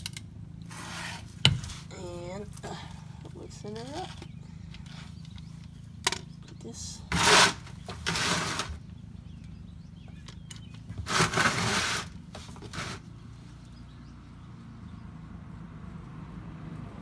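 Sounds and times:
rustling and scraping of tools: 0:00.0 - 0:08.9, 0:10.1 - 0:13.6
steady low hum: 0:00.0 - 0:11.1.

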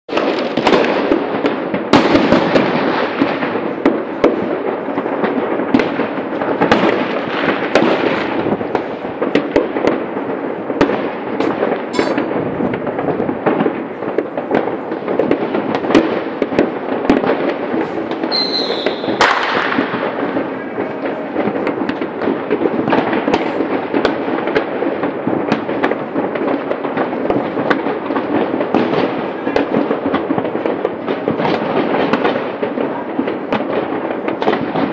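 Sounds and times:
fireworks crackling and banging: 0:00.1 - 0:34.9
firework whistle: 0:11.4 - 0:12.8, 0:17.2 - 0:22.1.

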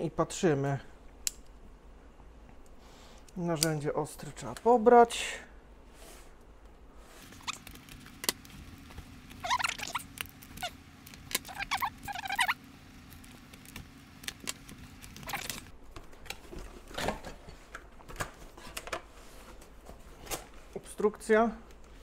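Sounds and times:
blade cutting packing tape: 0:07.3 - 0:15.7.

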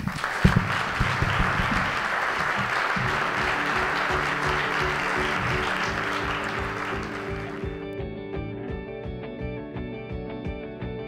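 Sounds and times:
audience applauding: 0:00.0 - 0:08.0
music: 0:00.0 - 0:11.0.

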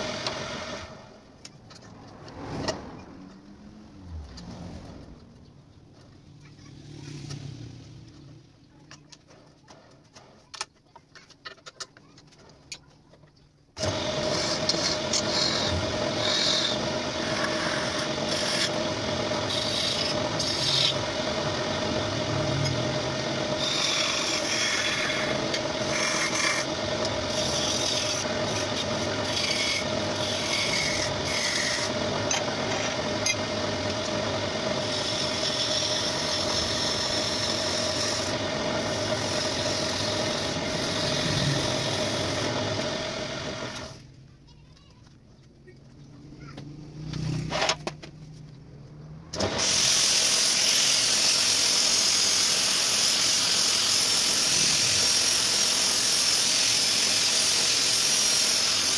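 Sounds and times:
wood lathe humming: 0:00.0 - 0:01.0, 0:13.8 - 0:44.0
hand tool scraping wood: 0:13.8 - 0:18.8, 0:23.6 - 0:33.4.

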